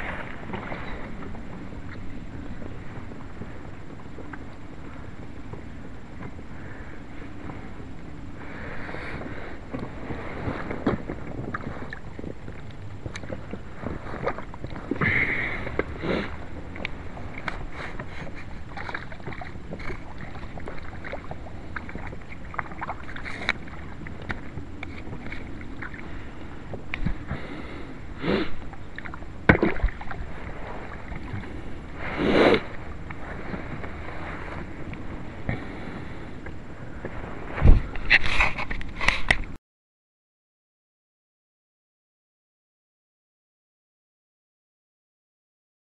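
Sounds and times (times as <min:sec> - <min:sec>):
water splashing against boat: 0:00.0 - 0:39.6
wind on microphone: 0:00.0 - 0:39.6
microphone handling noise: 0:36.9 - 0:39.6.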